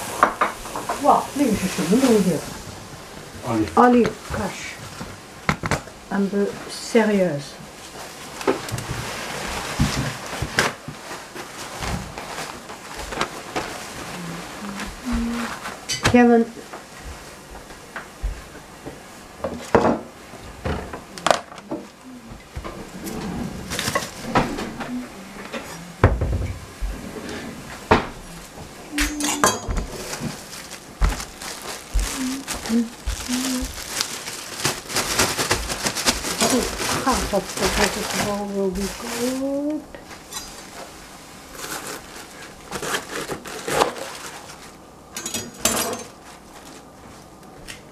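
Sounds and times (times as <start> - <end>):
paper towel rustling: 0.0 - 5.4, 6.2 - 19.4, 21.8 - 26.0, 26.6 - 45.1, 46.0 - 47.9
knife and dishes on tiled counter: 28.9 - 30.3, 45.2 - 46.2
paper crackles and clicks: 29.8 - 39.8, 41.6 - 44.8.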